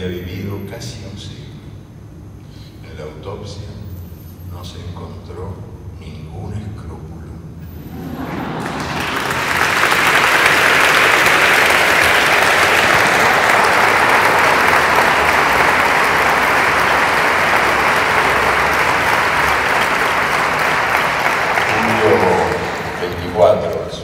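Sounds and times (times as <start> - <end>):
audience applauding: 7.7 - 24.0.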